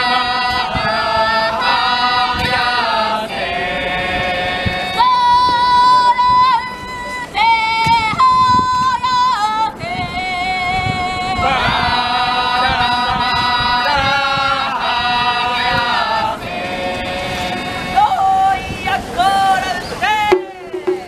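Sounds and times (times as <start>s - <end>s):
high voices chanting: 0.0s - 6.3s, 11.3s - 21.0s.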